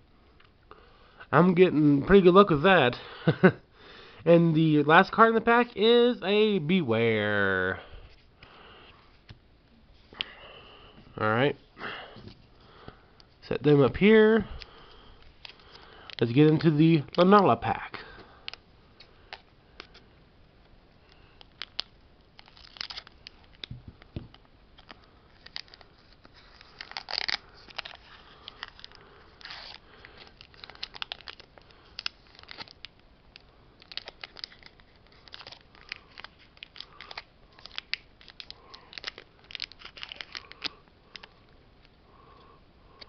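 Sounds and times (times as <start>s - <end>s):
foil wrapper crinkling and tearing: 21.0s - 41.4s.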